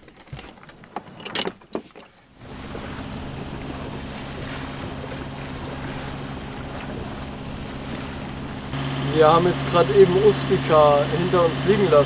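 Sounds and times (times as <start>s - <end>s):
rushing water: 2.2s - 12.0s
wind buffeting microphone: 2.4s - 9.4s
boat engine droning: 2.4s - 12.0s.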